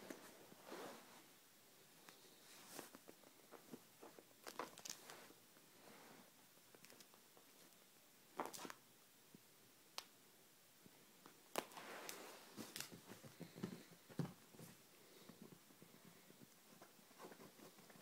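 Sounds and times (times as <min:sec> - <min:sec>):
fabric rustling: 0:00.0 - 0:06.3, 0:11.5 - 0:15.3.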